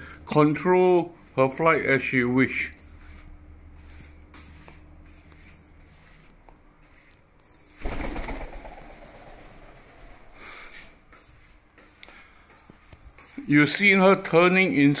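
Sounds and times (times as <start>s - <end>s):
parrot wingbeats: 7.7s - 10.9s.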